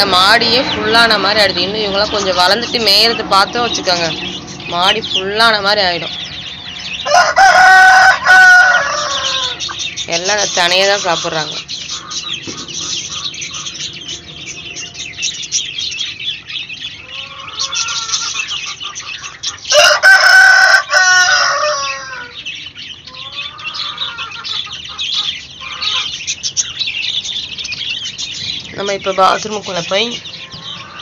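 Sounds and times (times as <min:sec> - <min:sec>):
chicks peeping: 0:00.0 - 0:31.0
hen clucking: 0:00.0 - 0:31.0
rooster crowing: 0:06.8 - 0:09.8, 0:17.0 - 0:18.4, 0:19.7 - 0:22.5.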